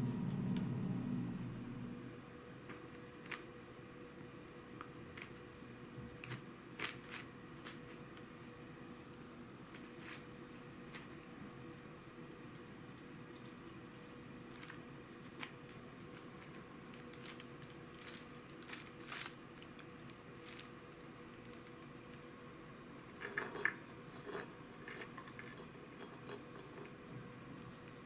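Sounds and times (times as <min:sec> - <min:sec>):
plastic bag rustling: 0:14.0 - 0:22.3.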